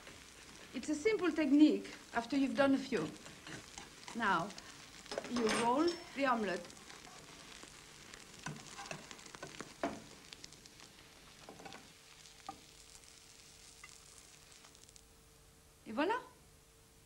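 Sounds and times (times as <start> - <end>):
egg sizzling in a frying pan: 0.0 - 15.4
knife scraping a pan: 8.4 - 9.5.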